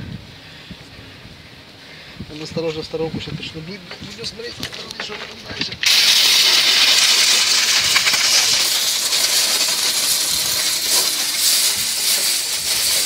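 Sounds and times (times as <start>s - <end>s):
compressed air hissing from blow gun: 5.8s - 13.0s.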